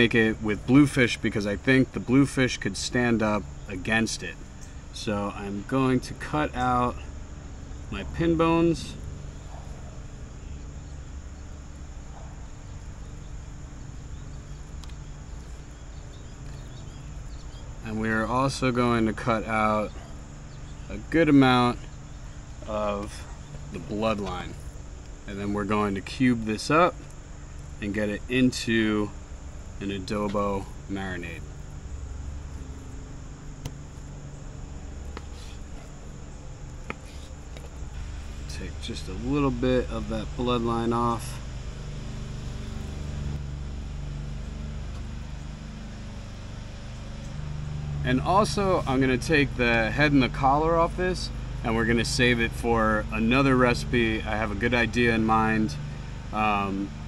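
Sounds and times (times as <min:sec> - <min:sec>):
insects chirring: 0:00.0 - 0:57.0
low background hum: 0:00.0 - 0:57.0.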